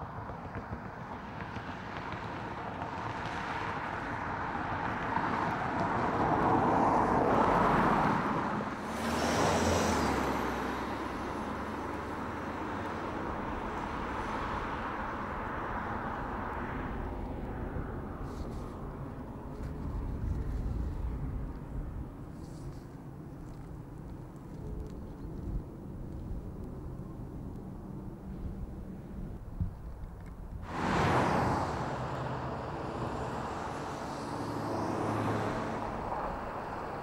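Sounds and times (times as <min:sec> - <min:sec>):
car driving past: 0:30.6 - 0:37.0.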